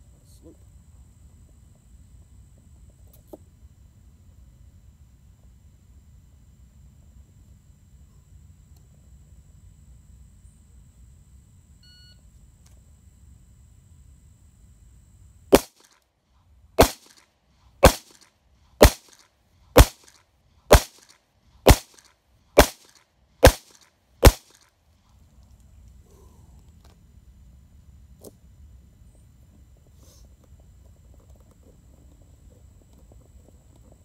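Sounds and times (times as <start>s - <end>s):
faint short beep: 11.8s - 12.3s
handgun shots: 15.5s - 16.0s, 16.8s - 17.2s, 17.8s - 19.2s, 19.8s - 24.6s.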